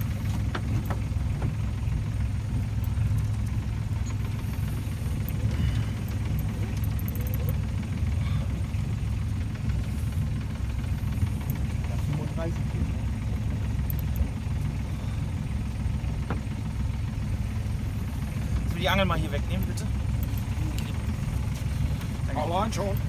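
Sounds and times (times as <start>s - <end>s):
boat engine low rumble: 0.0s - 23.0s
faint clicks: 2.8s - 7.7s, 11.3s - 11.7s, 13.8s - 14.7s.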